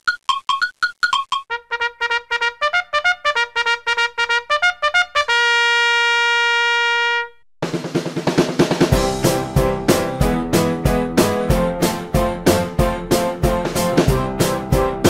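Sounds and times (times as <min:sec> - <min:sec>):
drum-led music track: 0:07.6 - 0:15.0.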